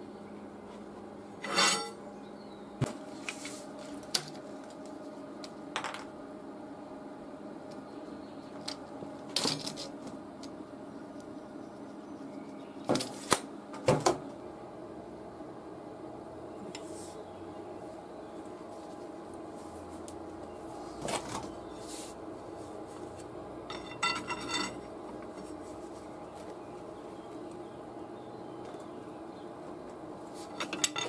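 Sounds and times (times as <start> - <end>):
faint steady hum: 0.0 - 31.0
metal tools clinking: 1.4 - 2.0, 23.7 - 24.9, 30.5 - 31.0.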